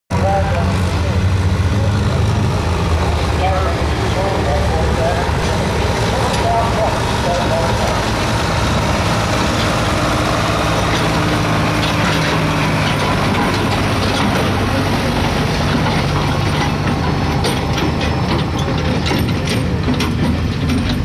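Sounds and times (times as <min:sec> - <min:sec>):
pickup truck engine running: 0:00.1 - 0:21.0.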